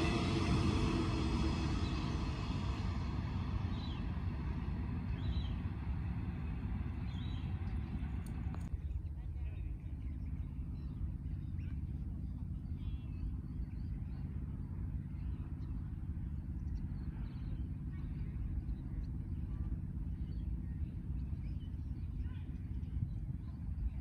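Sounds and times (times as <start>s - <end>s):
ride-on mower engine droning: 0.0s - 8.7s.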